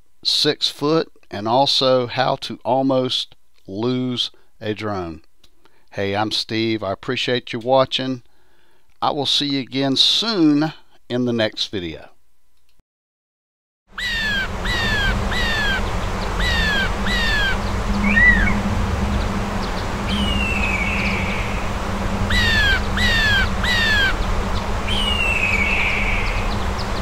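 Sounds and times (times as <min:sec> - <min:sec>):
crow calling: 0:14.0 - 0:18.6, 0:19.7 - 0:24.3
steady low rumble: 0:14.0 - 0:27.0.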